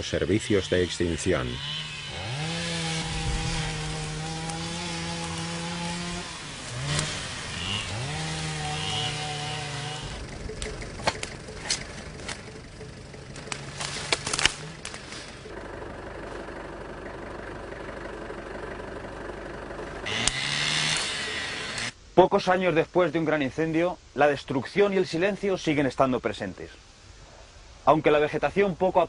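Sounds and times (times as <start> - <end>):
two-stroke brush cutter revving: 0.6 - 15.6, 20.0 - 22.0
sharp cracks and snaps: 3.0 - 8.0, 10.5 - 12.6, 13.3 - 15.4, 20.2 - 22.0.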